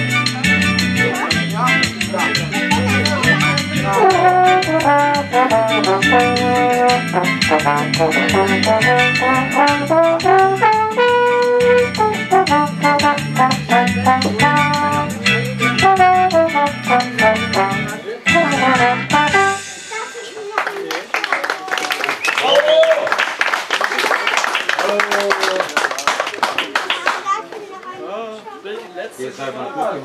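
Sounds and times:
backing music with bass and percussion: 0.0s - 20.6s
trombone solo: 3.3s - 19.8s.

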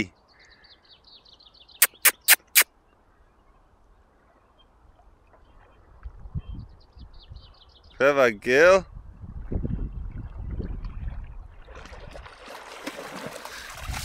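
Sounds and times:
faint bird trill: 1.6s - 2.6s
sharp clicks: 1.8s - 2.6s.

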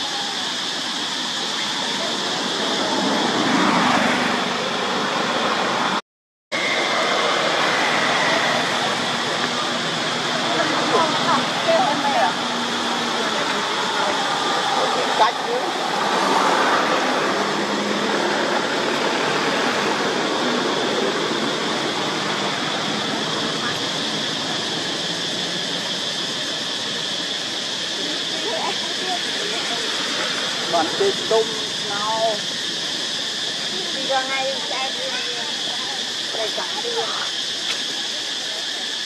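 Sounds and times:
rushing outdoor background noise: 0.0s - 39.0s
steady background hiss: 6.6s - 39.0s.

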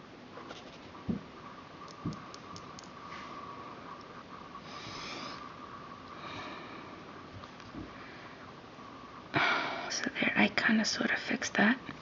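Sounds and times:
tiny clicks: 1.8s - 3.0s
soft nasal breaths: 3.0s - 10.3s.

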